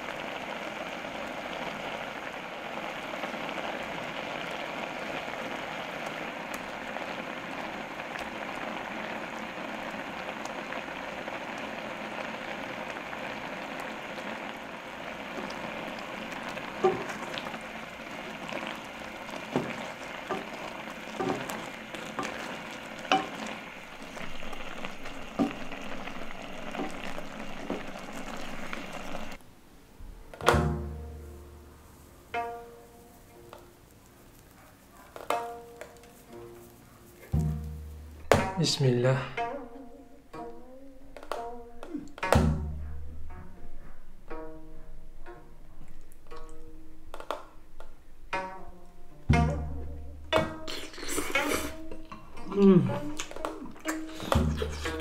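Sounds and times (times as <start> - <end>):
sauce bubbling and sizzling: 0.0 - 29.4, 30.5 - 55.0
wooden spoon knocking on pot: 16.7 - 29.3, 37.3 - 38.6.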